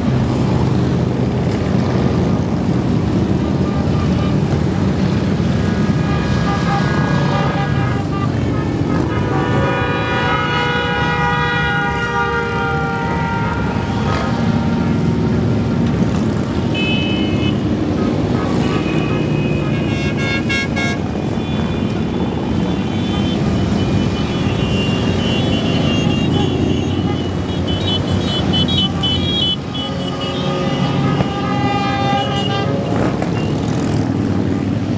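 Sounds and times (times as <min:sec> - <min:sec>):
horns honking: 0:03.4 - 0:04.9, 0:05.7 - 0:34.9.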